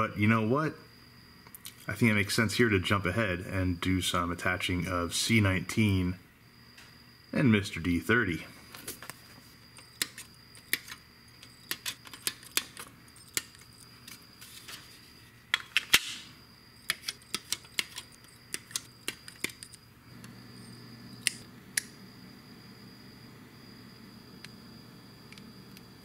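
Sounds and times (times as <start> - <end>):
faint low hum: 0.0 - 26.0
plastic parts clicking and tapping: 9.8 - 13.7, 16.9 - 19.8.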